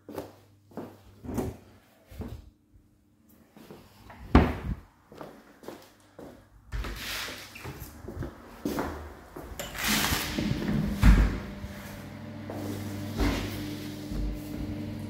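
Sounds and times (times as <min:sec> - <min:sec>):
footsteps: 0:10.4 - 0:14.8.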